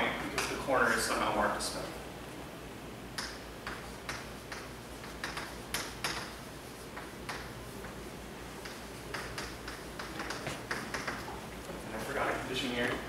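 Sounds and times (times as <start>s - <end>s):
chalk tapping and scratching: 3.2s - 13.0s.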